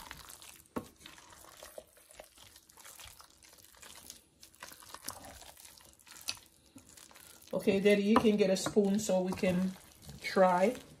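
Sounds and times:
spoon stirring wet salad: 0.0 - 11.0.

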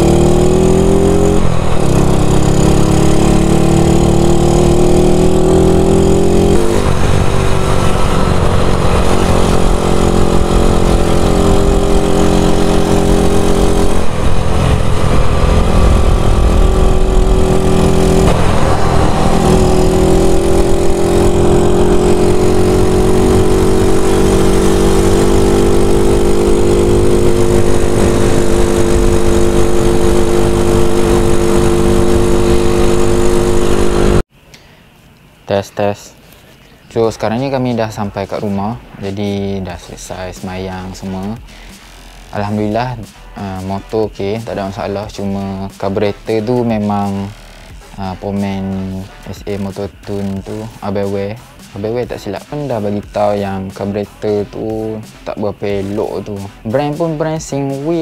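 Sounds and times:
scooter engine revving: 0.0 - 34.3
heavy wind rush: 12.6 - 24.6.

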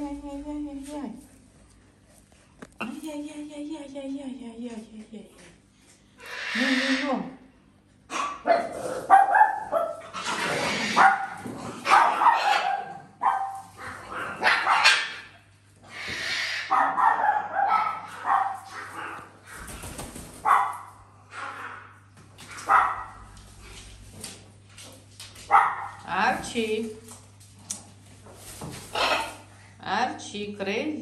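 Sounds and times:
parrot barking like a dog: 8.1 - 15.4, 16.2 - 19.4, 20.4 - 23.2, 25.5 - 26.0, 28.9 - 29.4.

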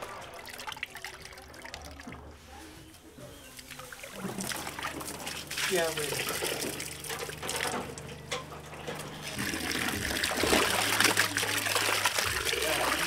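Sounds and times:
hands splashing in basin: 3.5 - 7.7, 9.3 - 13.0
water running from tap: 3.6 - 8.1, 8.9 - 13.0.

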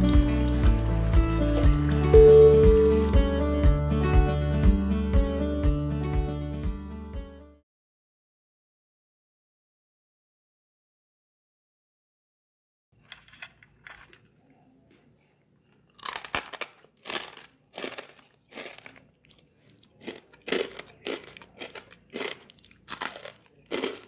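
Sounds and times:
crunchy snack being chewed: 13.0 - 14.3, 15.7 - 24.0.

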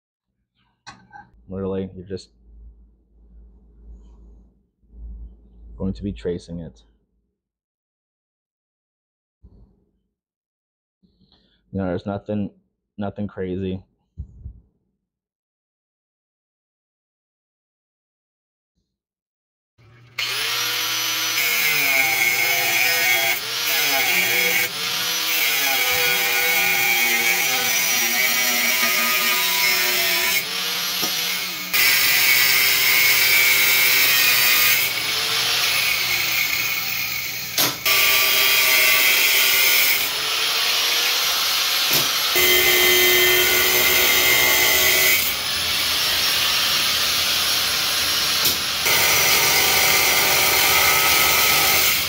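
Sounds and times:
power tool cutting steel: 20.1 - 52.0.

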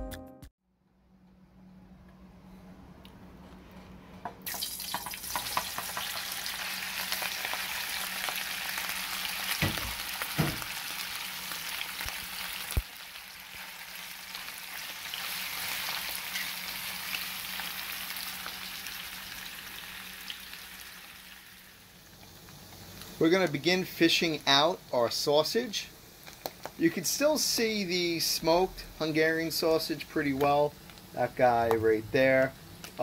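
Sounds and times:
sausages sizzling in hot oil: 4.4 - 33.0
knocks in frying pan: 4.9 - 6.2, 9.6 - 10.8.

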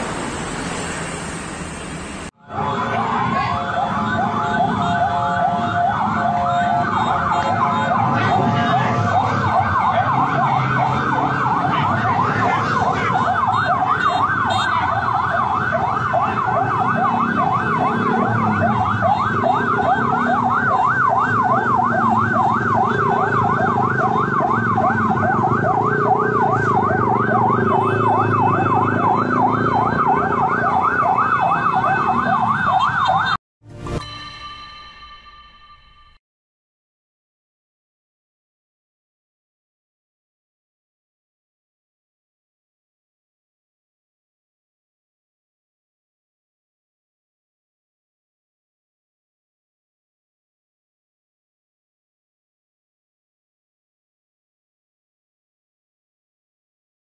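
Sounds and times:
police siren warbling: 0.0 - 33.4
engine and street noise: 0.0 - 34.2.

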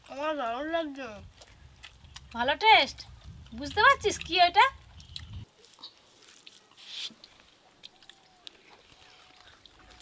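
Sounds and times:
quiet chewing: 1.2 - 10.0
clicks and rustles of mixing rice: 5.4 - 10.0.

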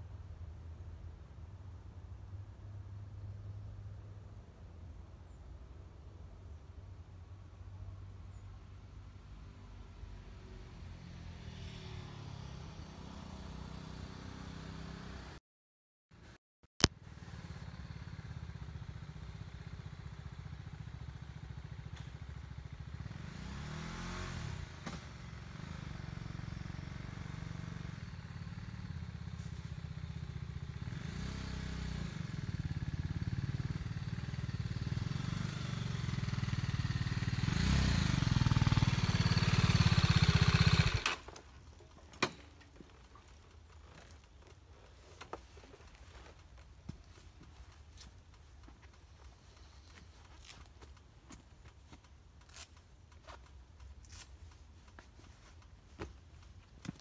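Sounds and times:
motorcycle engine running: 16.9 - 41.3.

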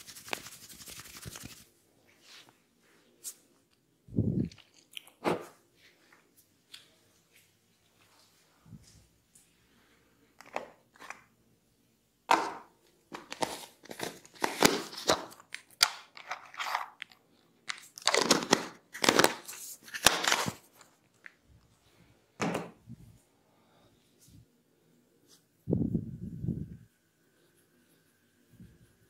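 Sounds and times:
plastic jar crackling: 13.1 - 20.6.

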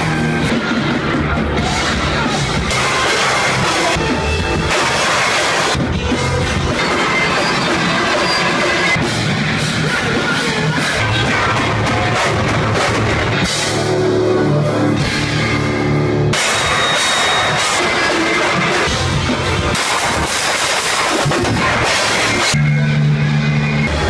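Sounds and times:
bass guitar: 0.0 - 24.0
distorted electric guitars: 0.0 - 24.0
pounding drum kit: 0.0 - 24.0.

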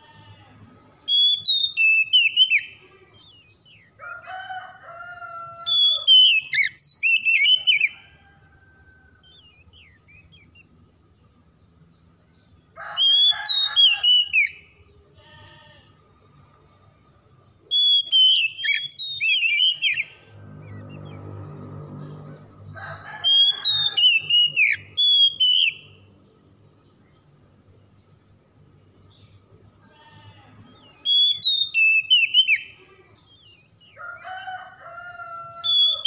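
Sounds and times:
magpie-robin singing: 1.0 - 3.6, 5.8 - 8.0, 17.7 - 20.1, 23.4 - 26.0, 30.8 - 33.8.

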